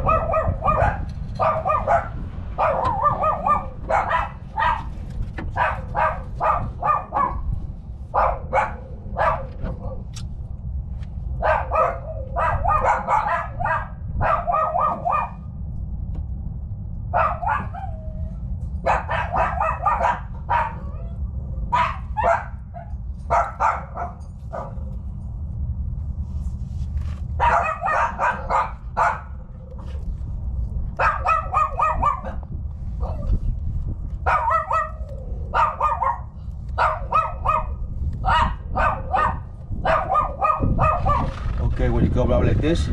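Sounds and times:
dog barking: 0.0s - 7.5s, 8.1s - 10.1s, 11.4s - 15.5s, 17.1s - 18.0s, 18.8s - 25.0s, 27.4s - 29.5s, 30.9s - 33.4s, 34.2s - 41.6s
low hum: 0.0s - 42.9s.

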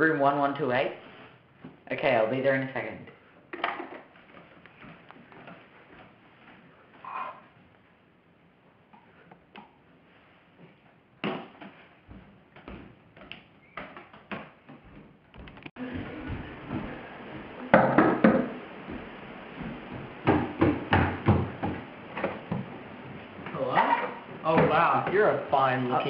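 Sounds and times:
knocking on wooden door: 17.7s - 18.6s, 19.6s - 21.8s.

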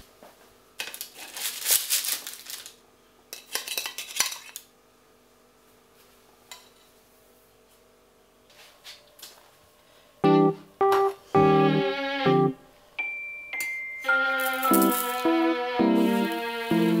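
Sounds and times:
parchment paper crinkling: 1.0s - 2.8s.

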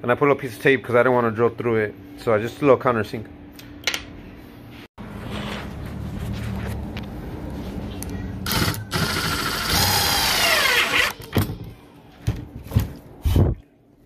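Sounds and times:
cordless drill driving a screw: 8.5s - 11.2s.

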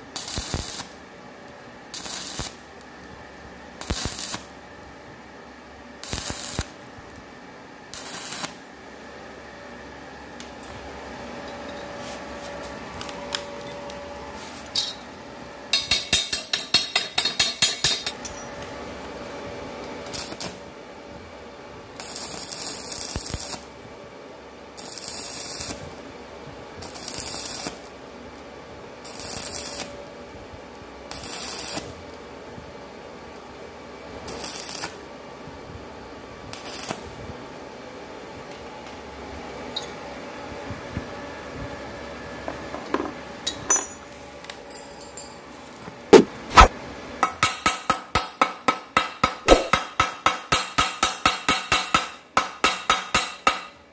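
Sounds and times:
welding arc crackling: 0.0s - 1.0s, 1.9s - 2.9s, 3.8s - 4.6s, 6.0s - 6.8s, 7.9s - 8.7s, 20.0s - 20.6s, 22.0s - 23.7s, 24.8s - 26.0s, 26.8s - 27.9s, 29.0s - 30.2s, 31.1s - 32.2s, 34.2s - 35.0s, 36.5s - 37.2s, 49.5s - 49.8s.

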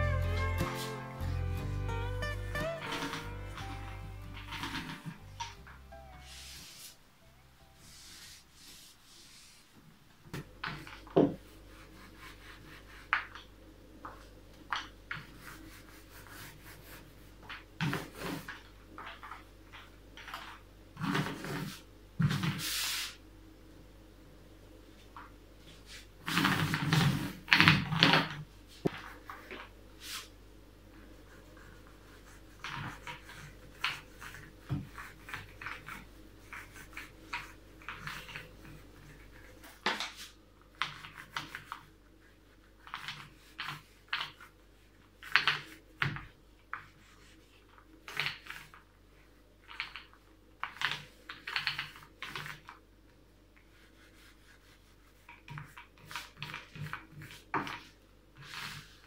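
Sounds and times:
paint roller rubbing on wood: 0.0s - 1.9s, 2.5s - 7.1s, 7.7s - 9.8s, 15.2s - 18.6s, 31.1s - 45.6s, 53.6s - 57.5s.

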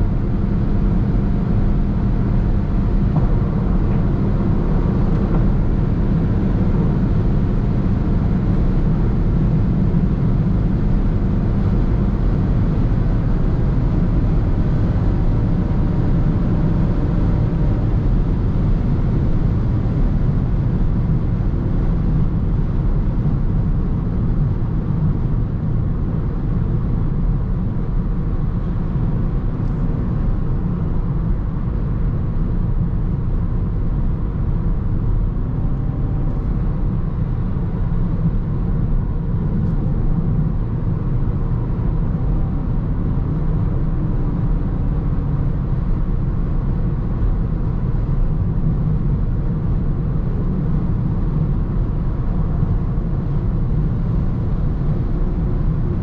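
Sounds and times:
faint drivetrain hum: 0.0s - 56.0s
road and wind rumble in car: 0.0s - 56.0s.

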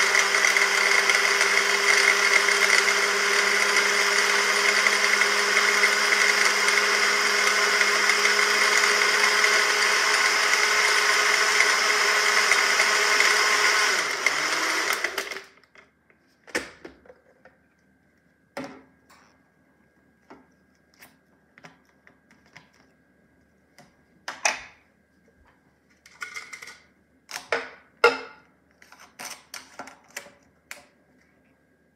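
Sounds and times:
blender motor running: 0.0s - 15.6s.

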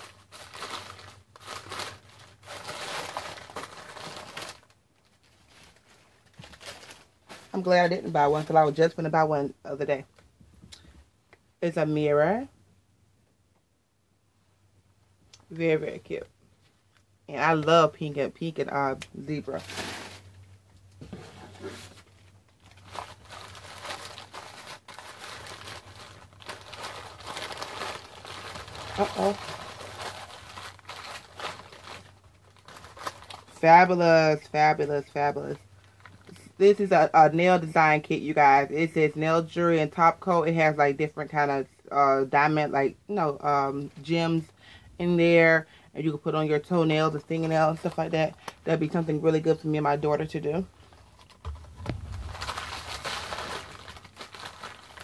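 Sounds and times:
gift wrapping crinkling: 0.0s - 9.2s, 16.8s - 36.4s, 47.0s - 55.0s.

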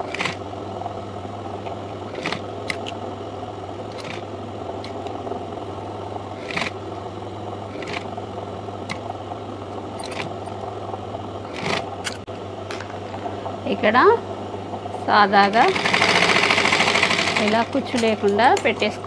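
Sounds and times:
sewing machine running: 0.0s - 0.4s, 2.0s - 2.9s, 3.9s - 4.2s, 6.3s - 6.8s, 7.7s - 8.1s, 11.4s - 12.2s, 15.4s - 18.2s.

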